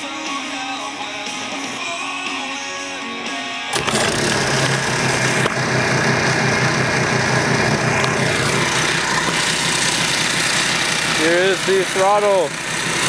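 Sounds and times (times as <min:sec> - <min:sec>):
small engine running steadily: 0:03.7 - 0:13.0.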